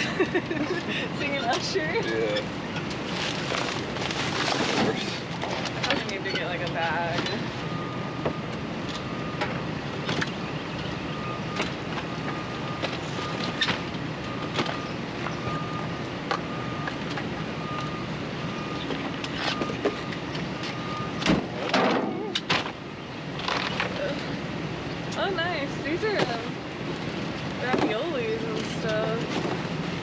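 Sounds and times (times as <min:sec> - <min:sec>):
low engine rumble: 0:00.0 - 0:30.0
trash knocking and rustling: 0:02.8 - 0:07.5
vehicle reversing alarm beeping: 0:04.6 - 0:24.6, 0:25.2 - 0:26.8.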